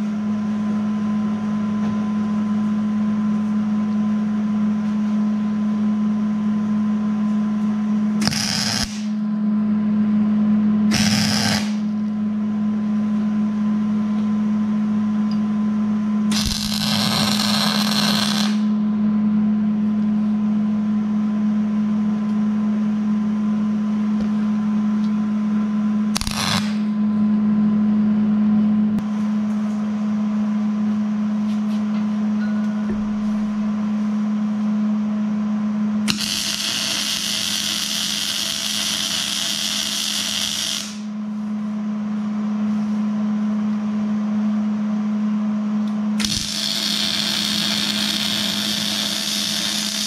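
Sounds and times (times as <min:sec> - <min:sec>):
steady low hum: 0:00.0 - 0:50.0
welding arc crackle and hiss: 0:08.2 - 0:09.2, 0:10.9 - 0:11.9, 0:16.3 - 0:18.7, 0:26.2 - 0:27.0, 0:36.1 - 0:41.1, 0:46.2 - 0:50.0.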